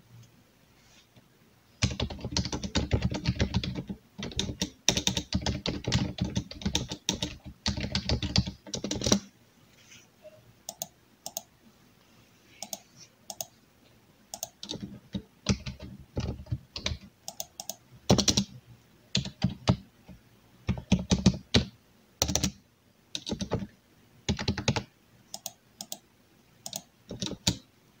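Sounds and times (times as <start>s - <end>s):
computer keyboard typing: 1.8s - 9.3s, 10.7s - 11.5s, 12.6s - 13.5s, 14.3s - 18.5s, 19.2s - 19.8s, 20.7s - 22.6s, 23.2s - 23.7s, 24.3s - 26.0s, 26.6s - 27.6s.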